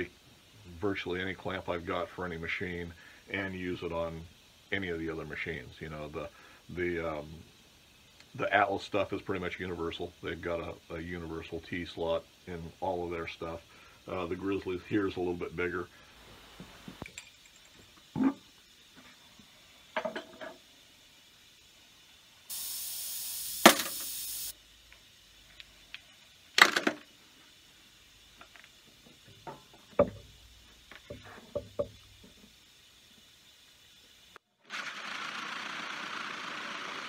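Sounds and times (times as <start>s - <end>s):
steady hiss: 0.0s - 34.5s
metal nuts clinking into bowl: 17.0s - 17.8s.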